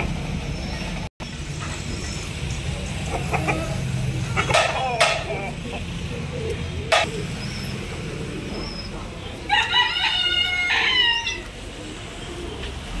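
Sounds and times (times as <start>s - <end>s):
rooster crowing: 9.5s - 11.5s.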